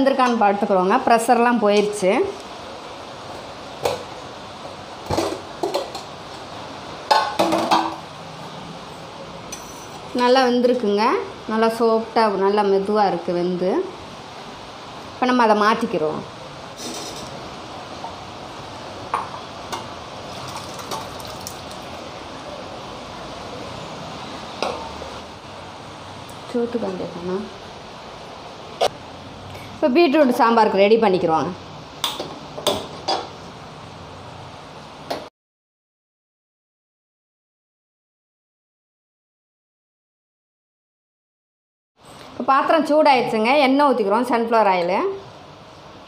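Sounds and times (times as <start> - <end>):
liquid pouring and splashing: 20.3 - 22.0.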